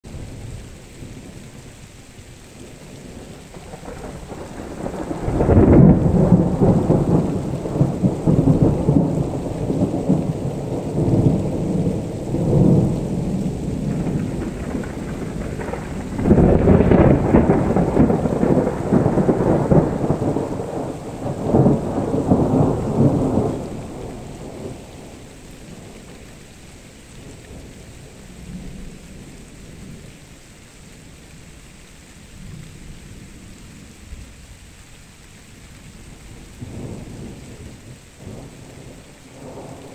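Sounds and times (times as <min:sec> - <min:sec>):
thunder rumbling: 0:02.6 - 0:26.4, 0:35.9 - 0:39.9.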